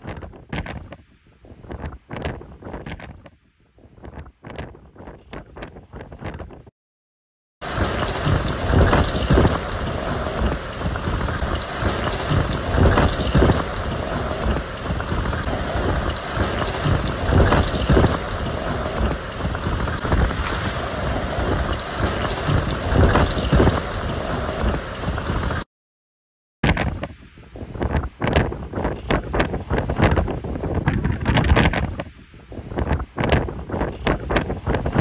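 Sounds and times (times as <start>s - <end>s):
wind buffeting microphone: 0.0s - 6.7s, 7.6s - 25.6s, 26.7s - 35.0s
gale-force wind: 7.6s - 25.7s, 26.7s - 35.0s
heavy rain: 7.6s - 25.7s.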